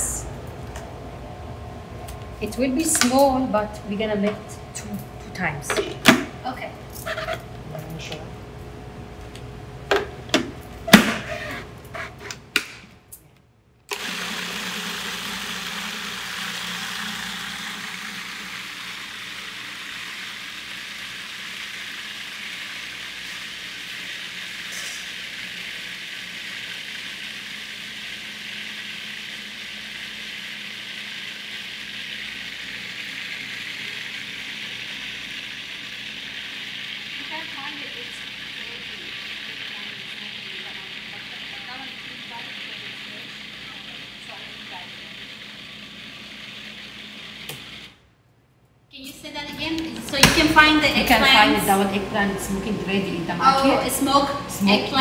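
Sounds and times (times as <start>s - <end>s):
food processor motor humming: 13.9s - 48.0s.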